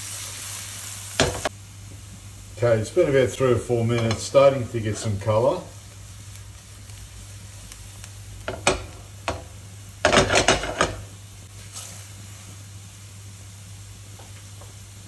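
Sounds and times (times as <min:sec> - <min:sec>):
vegetables sizzling in pan: 0:00.0 - 0:15.0
pan knocking on stove: 0:08.4 - 0:11.1.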